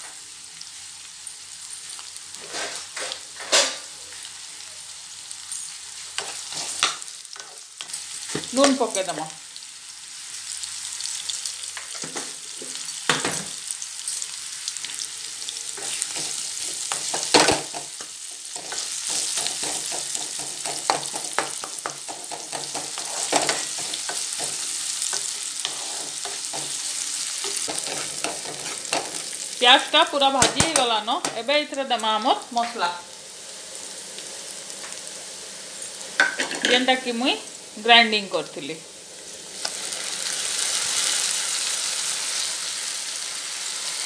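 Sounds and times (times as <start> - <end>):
onions sizzling in hot oil: 0.0 - 44.0
wooden spatula scraping pan: 22.3 - 29.3.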